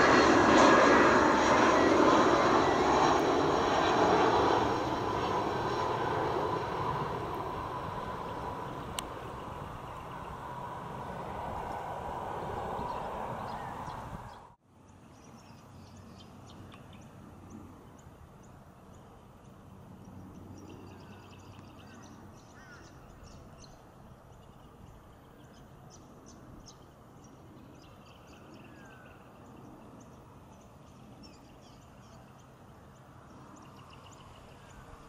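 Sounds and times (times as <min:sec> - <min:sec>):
distant turboprop plane drone: 0:00.0 - 0:35.0
small birds chirping: 0:12.8 - 0:35.0.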